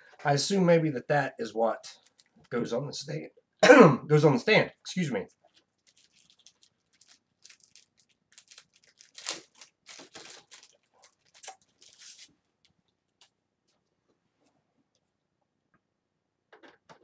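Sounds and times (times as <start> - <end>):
packaging tearing and crinkling: 1.9 - 2.5, 5.5 - 12.3.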